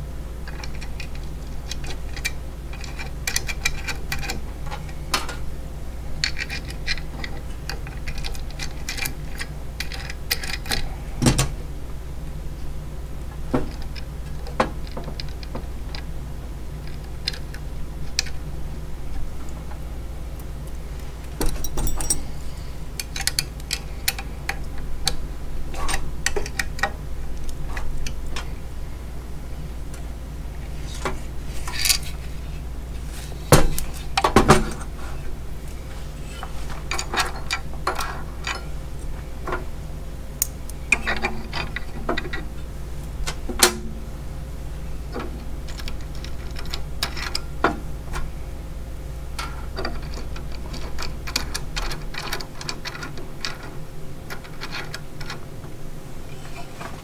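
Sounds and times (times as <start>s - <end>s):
low background hum: 0.0s - 57.0s
metal nuts and bolts clinking: 21.4s - 22.4s.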